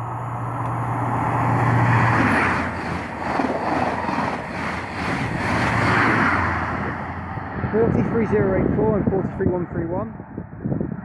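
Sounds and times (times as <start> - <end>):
diesel engine drone: 0.0 - 11.0
train coaches rushing past: 0.8 - 8.0.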